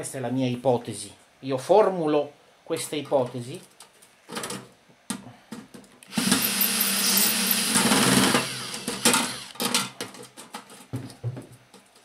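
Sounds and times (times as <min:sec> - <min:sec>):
cordless drill grinding on screw: 0:06.0 - 0:09.6.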